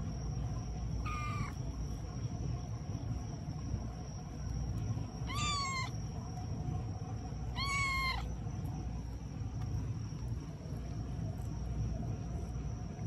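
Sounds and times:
cat meowing: 0:01.0 - 0:01.6, 0:05.3 - 0:05.9, 0:07.5 - 0:08.3.

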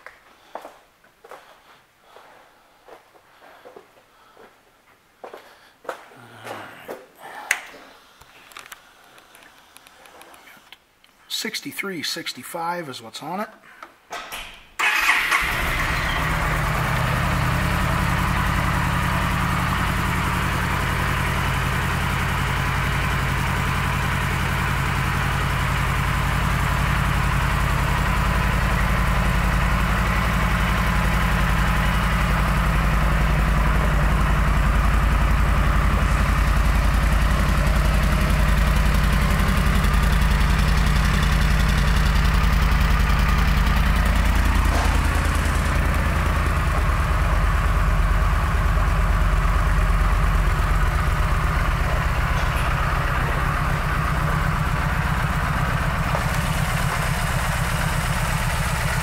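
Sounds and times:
electric starter cranking: 0:14.8 - 0:19.0, 0:36.2 - 0:59.0
motorcycle engine idling: 0:14.9 - 0:59.0.

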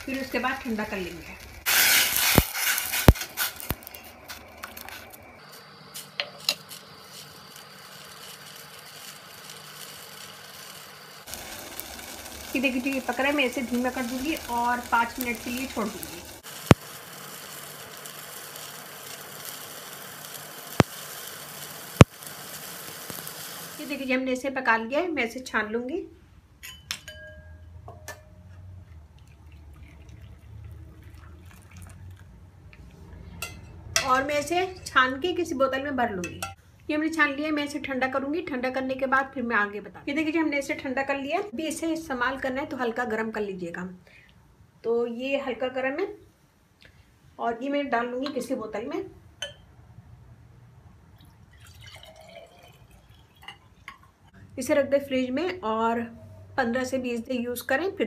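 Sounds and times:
water heating hiss: 0:00.0 - 0:24.2
faint trickle of liquid: 0:28.8 - 0:32.4, 0:51.2 - 0:54.4.

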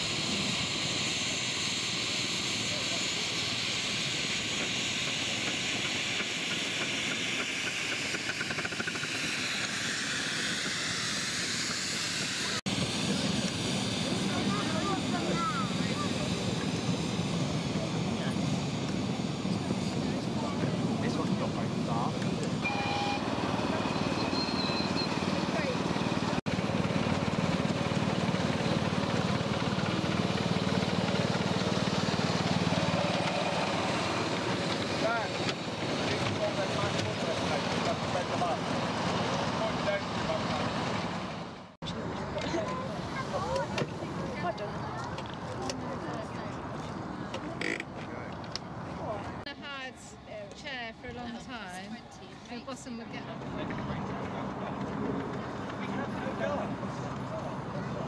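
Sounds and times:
small engine idling: 0:00.0 - 0:44.9
steam locomotive hissing: 0:00.0 - 0:44.9.

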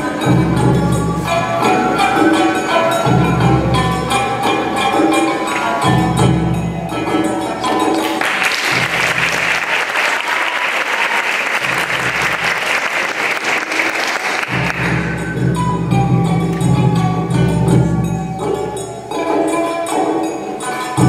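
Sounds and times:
traditional entrance music: 0:00.0 - 0:21.0
audience applause: 0:08.0 - 0:15.1.

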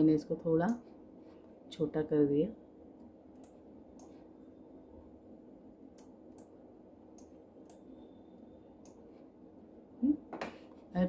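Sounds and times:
low steady hum: 0:00.0 - 0:11.0
computer mouse clicks: 0:03.4 - 0:04.2.

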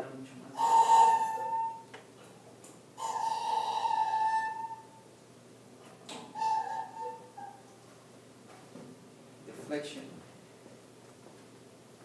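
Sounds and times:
hydraulic rig squealing: 0:00.6 - 0:01.9, 0:03.0 - 0:05.0, 0:06.3 - 0:07.6.

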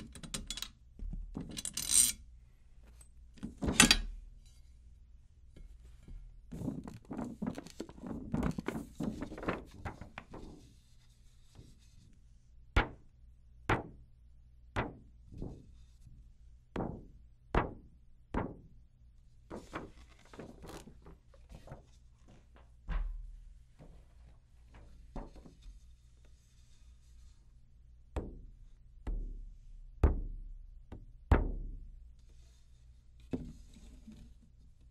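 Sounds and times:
drum hardware clicking and rustling: 0:19.5 - 0:25.7
low thump: 0:22.9 - 0:23.6.

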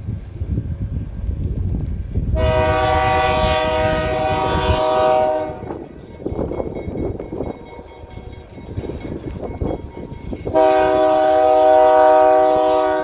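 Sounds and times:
low rumble: 0:00.0 - 0:11.2
locomotive air horn chord: 0:02.4 - 0:05.9, 0:10.2 - 0:13.0.

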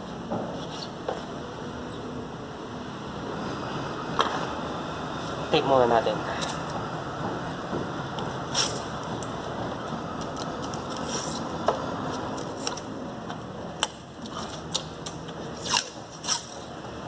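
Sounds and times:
steady background noise: 0:00.0 - 0:17.0
adhesive tape ripping off roll: 0:08.5 - 0:08.9, 0:10.3 - 0:11.6, 0:14.4 - 0:16.6.

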